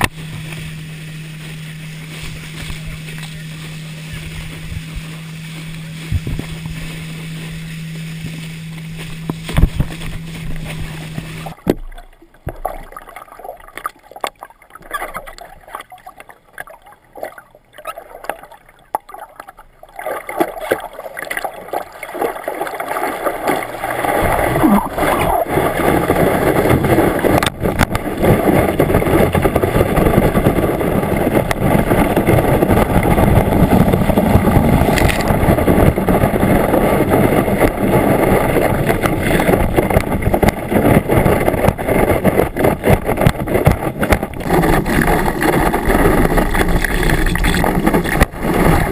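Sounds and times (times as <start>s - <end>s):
motorboat engine drone: 0.0s - 12.6s, 15.2s - 48.9s
water lapping: 0.0s - 48.9s
water rushing and splashing: 0.0s - 48.9s.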